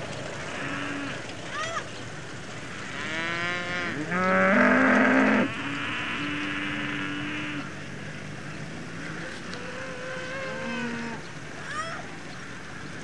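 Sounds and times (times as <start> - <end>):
cattle mooing: 0.5 - 1.2, 2.8 - 7.7, 8.9 - 11.2.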